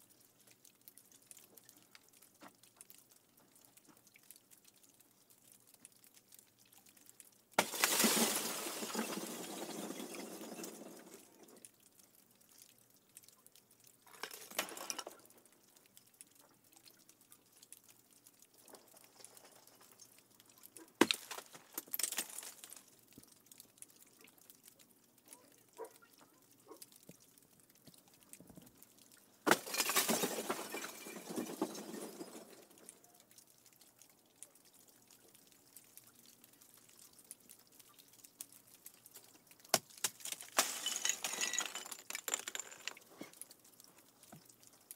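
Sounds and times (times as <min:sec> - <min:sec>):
ice crystals clinking: 0:07.6 - 0:11.6, 0:14.1 - 0:15.3, 0:21.0 - 0:22.9, 0:29.5 - 0:32.8, 0:39.7 - 0:43.4.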